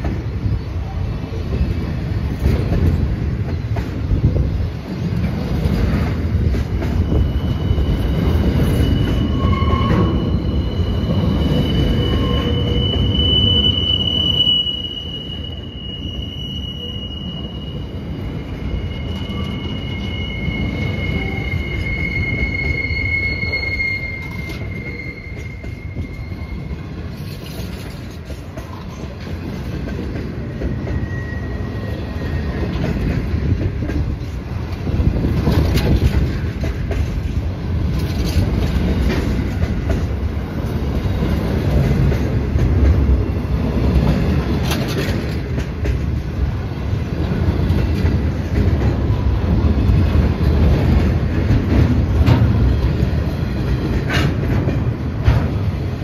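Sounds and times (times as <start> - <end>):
high-pitched wheel squeal: 6.9 - 28.0, 30.7 - 32.8.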